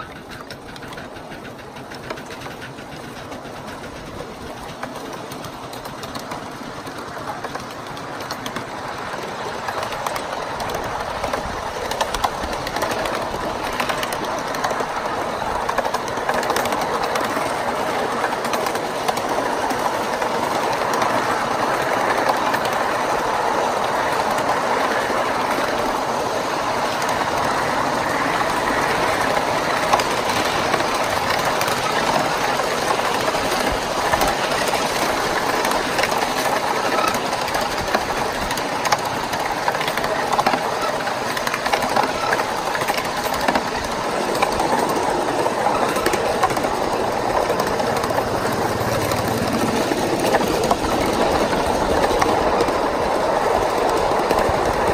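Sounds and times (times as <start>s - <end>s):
miniature train wheels clattering: 0.0s - 54.9s.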